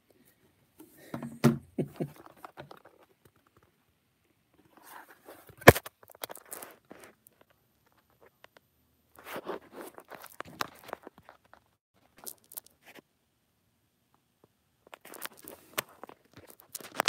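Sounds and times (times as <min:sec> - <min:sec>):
rustling: 0:04.5 - 0:13.0, 0:14.8 - 0:17.0.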